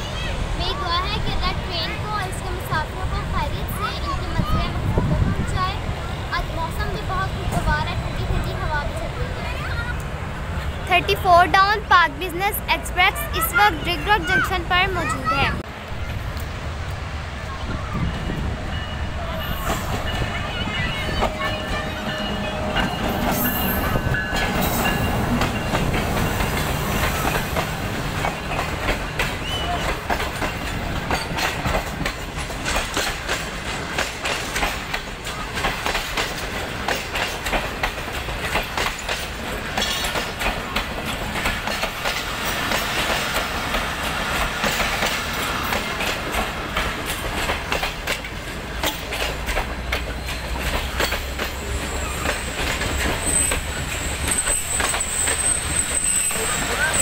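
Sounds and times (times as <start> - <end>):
train rumble: 0.0 - 57.0
train wheels clicking over rail joints: 18.0 - 57.0.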